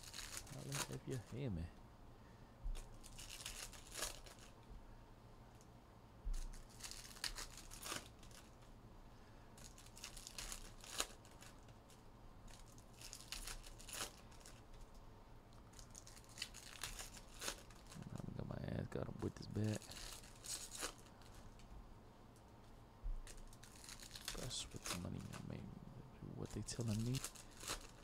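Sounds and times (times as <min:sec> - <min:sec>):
card packaging tearing and crinkling: 0:00.0 - 0:01.4, 0:02.8 - 0:04.6, 0:06.3 - 0:08.6, 0:09.6 - 0:11.7, 0:12.5 - 0:14.6, 0:15.7 - 0:18.3, 0:19.2 - 0:21.6, 0:23.2 - 0:25.6, 0:26.4 - 0:28.0.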